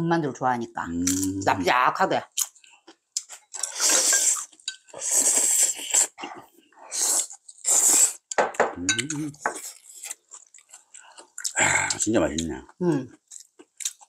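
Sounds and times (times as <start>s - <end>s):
chopsticks clinking on bowls: 3.6s - 5.1s, 8.8s - 10.8s
slurping hot food: 3.6s - 6.3s, 6.9s - 8.3s.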